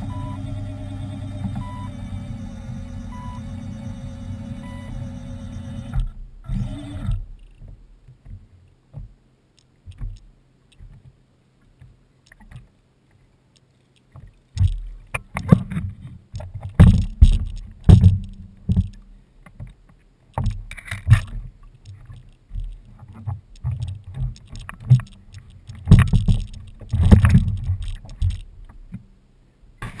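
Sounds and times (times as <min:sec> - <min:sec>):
steady hum: 0:00.0 - 0:08.1, 0:20.4 - 0:30.0
water lapping against a hull: 0:06.4 - 0:30.0
knocks against a hull: 0:14.2 - 0:19.0, 0:25.7 - 0:29.0.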